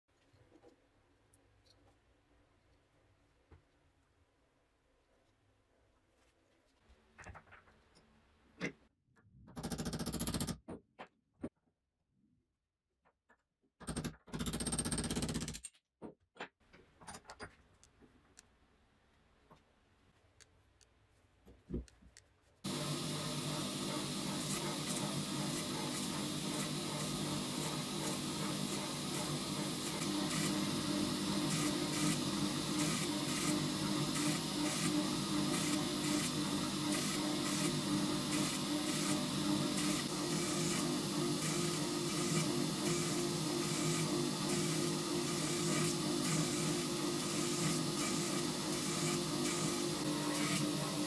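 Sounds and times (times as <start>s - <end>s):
surface grinder grinding steel: 22.7s - 51.0s.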